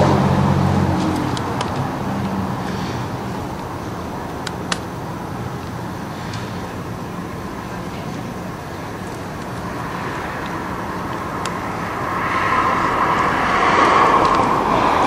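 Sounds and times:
street background hum: 0.0 - 15.0
vehicle passing: 0.0 - 15.0.

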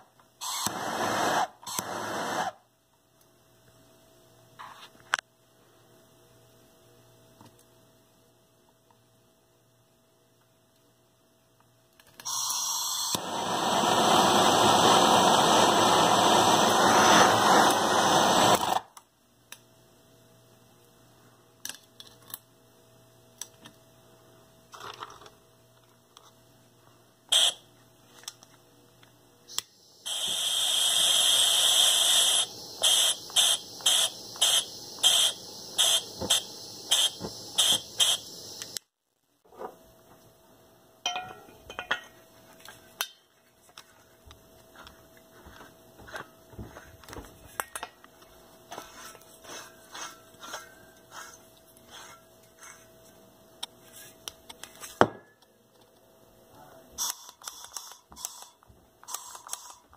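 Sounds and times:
hand torch hissing flame: 0.4 - 2.6, 12.3 - 18.8, 29.5 - 38.8, 48.7 - 53.0, 57.0 - 59.9.

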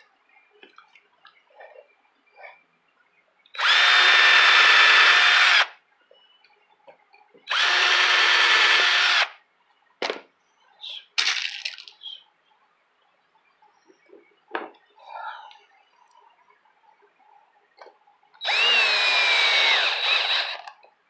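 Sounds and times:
cordless drill whining: 3.6 - 5.7, 7.5 - 9.3, 18.4 - 20.7.

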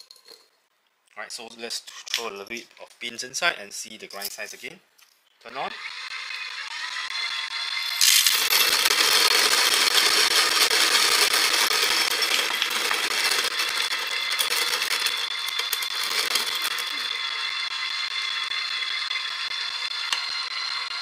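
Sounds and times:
grinder motor running: 5.5 - 21.0
coffee beans crackling in grinder: 7.8 - 21.0.

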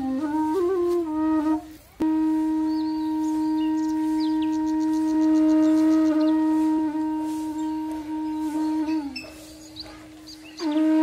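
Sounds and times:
long held wind instrument note: 0.0 - 11.0.

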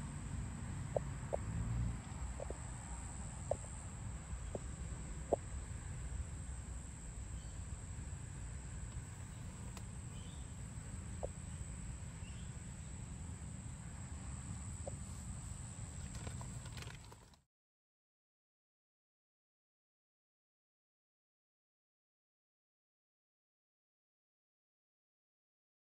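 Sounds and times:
low rumble on microphone: 0.0 - 16.6
bird calls: 8.9 - 12.9.

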